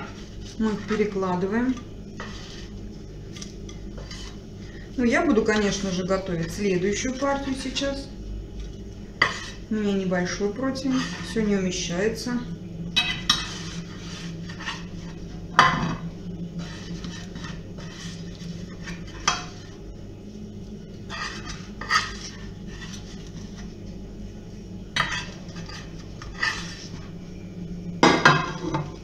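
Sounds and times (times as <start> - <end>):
steady low hum: 0.0 - 29.0
utensils clinking against dishes: 13.0 - 13.7.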